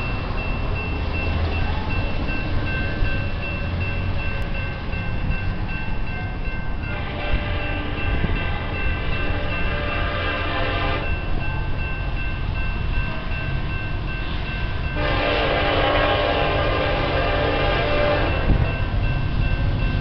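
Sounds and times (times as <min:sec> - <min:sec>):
locomotive air horn blasts: 0:06.8 - 0:11.2, 0:15.0 - 0:18.7.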